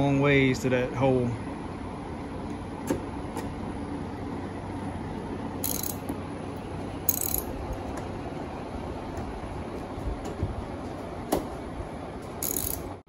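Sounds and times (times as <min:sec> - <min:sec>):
floor fan humming: 0:00.0 - 0:13.0
socket ratchet clicking: 0:05.6 - 0:06.1, 0:07.1 - 0:07.5, 0:12.4 - 0:12.9.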